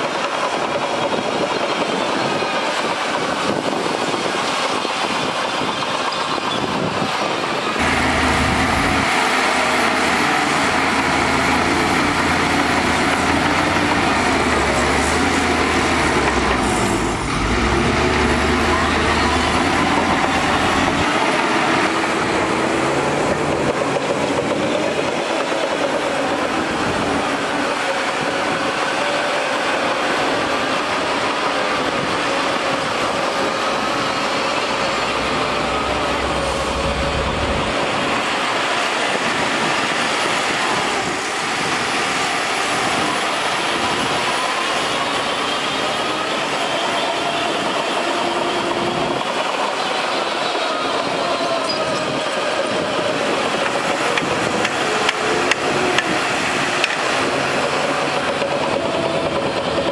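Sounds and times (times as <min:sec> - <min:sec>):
bulldozer tracks pushing dirt: 0:00.0 - 0:59.9
dump truck unloading dirt: 0:07.8 - 0:24.9, 0:32.0 - 0:46.0.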